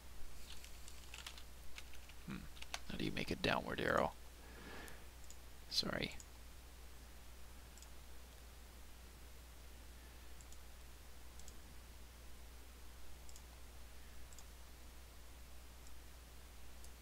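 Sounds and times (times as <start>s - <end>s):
low steady hum: 0.0s - 17.0s
computer mouse clicks: 4.8s - 5.4s, 7.8s - 8.0s, 10.4s - 10.6s, 11.4s - 11.6s, 13.2s - 13.5s, 14.3s - 14.5s.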